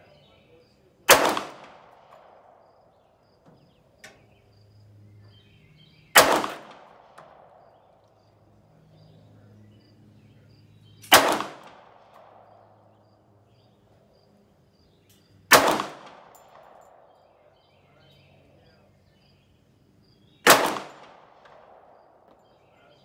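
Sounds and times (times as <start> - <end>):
pistol shots with echo: 0.0 - 4.1, 6.0 - 9.3, 10.9 - 14.2, 15.1 - 17.8, 20.3 - 23.0.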